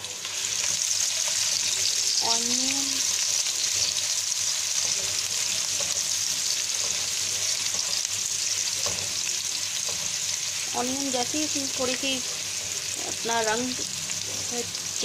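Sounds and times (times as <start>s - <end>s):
onion sizzling in oil: 0.0s - 15.0s.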